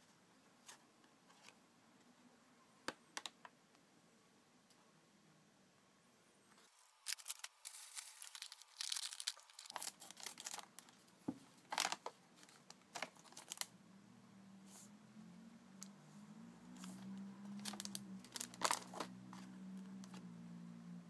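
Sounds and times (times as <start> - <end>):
foil bag rustling: 7.0 - 11.0, 11.6 - 13.7, 17.6 - 19.5
plastic packet crinkling and tearing: 7.0 - 11.0, 11.6 - 13.7, 17.5 - 20.2.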